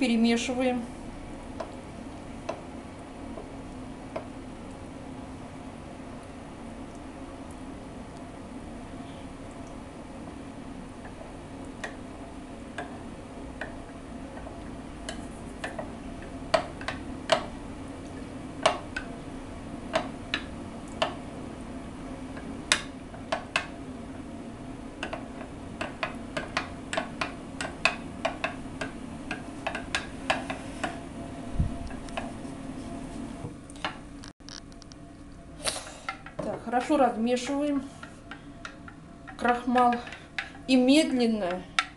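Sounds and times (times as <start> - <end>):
steady low hum: 0.0 - 41.9.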